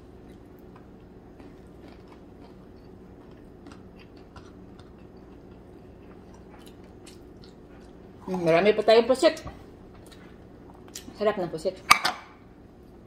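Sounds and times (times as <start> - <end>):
faint crunchy chewing: 0.2 - 8.5.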